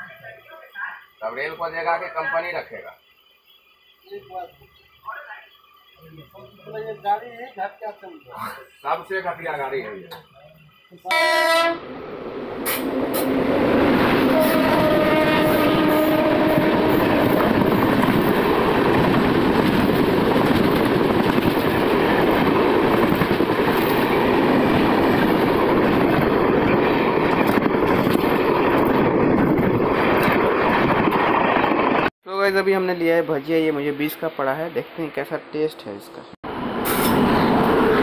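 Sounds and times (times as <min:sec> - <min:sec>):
locomotive horn: 0:11.1 - 0:11.9, 0:14.2 - 0:17.4
train wheels rumbling on rails: 0:11.5 - 0:35.2, 0:36.2 - 0:38.0.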